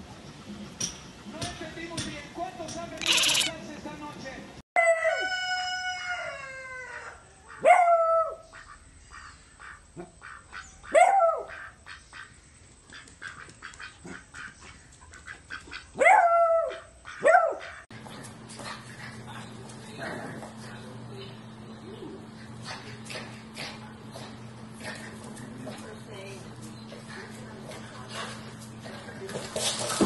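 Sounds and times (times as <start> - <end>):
dog barking: 7.6 - 8.4, 10.9 - 11.6, 16.0 - 17.8.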